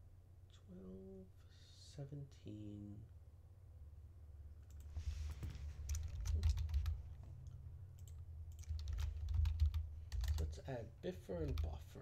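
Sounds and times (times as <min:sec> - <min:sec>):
steady low hum: 0:00.0 - 0:12.0
computer keyboard typing: 0:05.8 - 0:10.6, 0:11.4 - 0:11.8.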